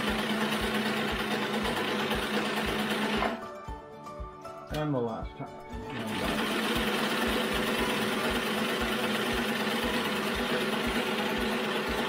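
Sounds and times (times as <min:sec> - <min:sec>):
sewing machine whirring: 0:00.0 - 0:03.4, 0:05.9 - 0:12.0.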